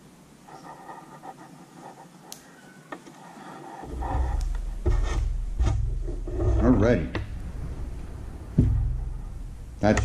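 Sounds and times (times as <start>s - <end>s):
hand rubbing on wooden table: 0.5s - 7.3s.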